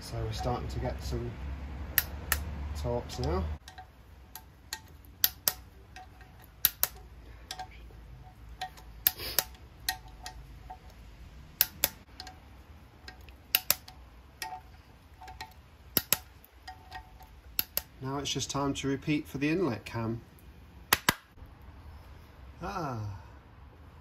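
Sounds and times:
torque wrench clicking: 1.9s - 2.5s, 3.1s - 7.8s, 8.5s - 11.0s, 11.6s - 12.4s, 13.0s - 18.0s
ratchet ticks: 3.1s - 7.8s, 11.6s - 12.4s, 13.1s - 14.6s, 15.2s - 17.9s.

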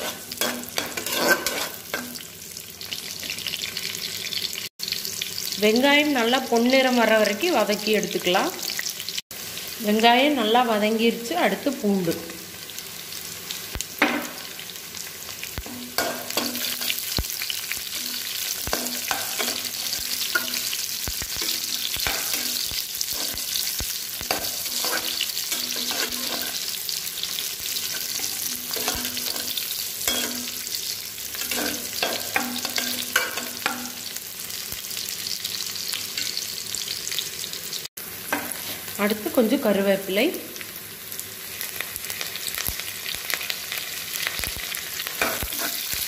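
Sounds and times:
spatula scraping pan: 0.0s - 2.2s, 21.4s - 26.7s, 27.4s - 30.6s, 31.3s - 34.0s, 45.2s - 46.0s
shallots sizzling in hot oil: 0.0s - 46.0s.

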